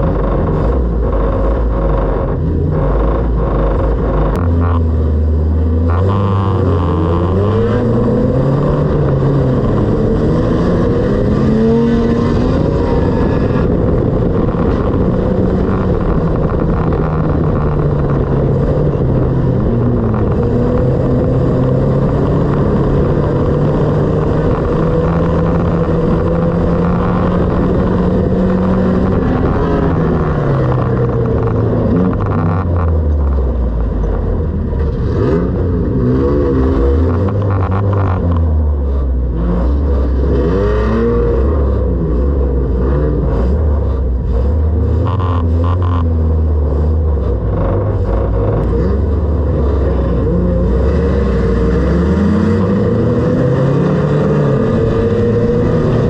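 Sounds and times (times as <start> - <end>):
racing car engine revving: 0.0 - 56.0.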